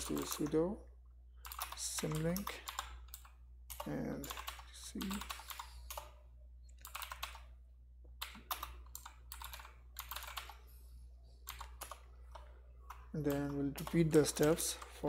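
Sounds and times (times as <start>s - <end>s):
typing on computer keyboard: 0.0s - 0.5s, 1.4s - 6.2s, 6.8s - 7.5s, 8.2s - 10.6s, 11.4s - 15.0s
faint low hum: 0.0s - 15.0s.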